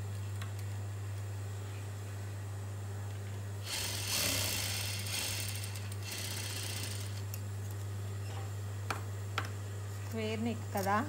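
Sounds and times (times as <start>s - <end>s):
steady low hum: 0.0s - 11.0s
sewing machine running: 3.6s - 7.2s.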